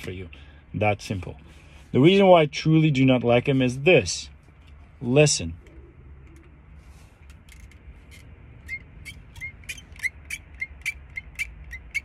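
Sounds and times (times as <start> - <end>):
plastic glasses frame creaking: 7.2 - 12.0.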